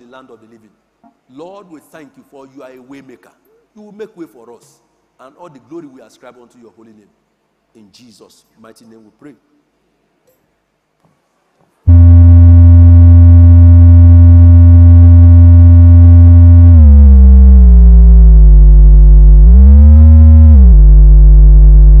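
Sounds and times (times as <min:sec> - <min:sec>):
deep electronic buzzing tone: 0:11.9 - 0:22.0.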